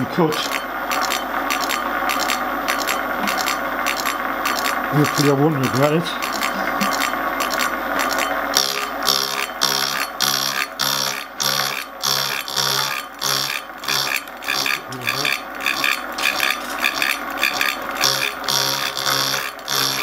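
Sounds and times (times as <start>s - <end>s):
milling cutter cutting metal: 0.0s - 20.0s.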